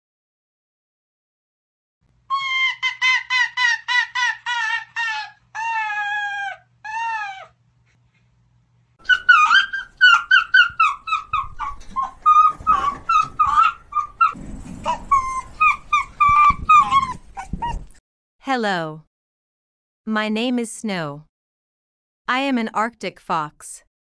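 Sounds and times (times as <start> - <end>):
fox yipping: 2.3 - 7.6, 9.0 - 18.0.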